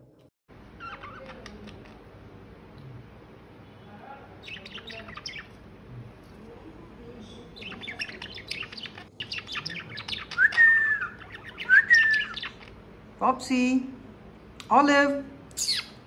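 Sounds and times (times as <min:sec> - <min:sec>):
budgerigars twittering: 0:00.7 - 0:02.0, 0:04.4 - 0:05.6, 0:07.4 - 0:12.9, 0:15.6 - 0:16.0
loud whistled bird calls: 0:07.6 - 0:12.7.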